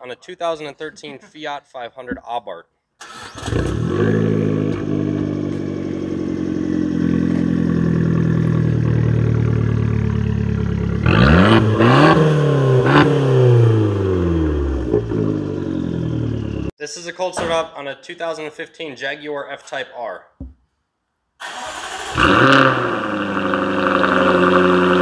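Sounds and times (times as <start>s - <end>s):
car engine idling and revving: 3.2s - 16.7s, 21.5s - 25.0s.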